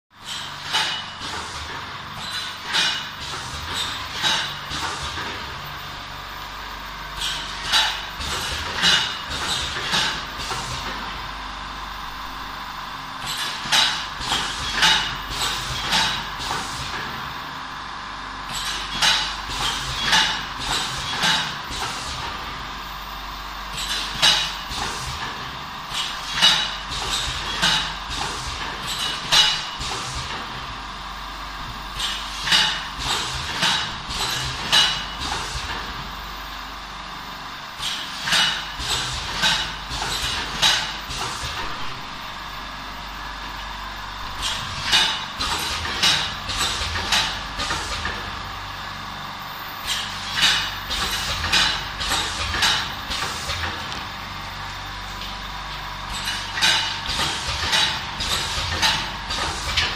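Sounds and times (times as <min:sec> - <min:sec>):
machine hissing clacks: 0:00.2 - 0:05.6, 0:07.2 - 0:11.1, 0:13.2 - 0:17.2, 0:18.5 - 0:22.5, 0:23.7 - 0:30.6, 0:31.9 - 0:36.0, 0:37.8 - 0:42.0, 0:44.3 - 0:48.4, 0:49.8 - 0:54.0, 0:56.0 - 0:59.9
machine hum with faint whine: 0:00.2 - 0:59.9
machine clattering strokes: 0:56.1 - 0:59.9.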